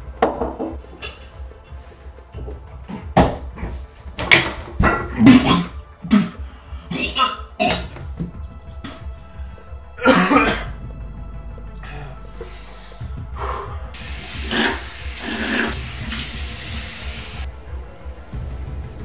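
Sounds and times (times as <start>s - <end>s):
low background music: 0.0s - 19.0s
faucet running: 13.9s - 17.5s
water splashing: 14.0s - 17.5s.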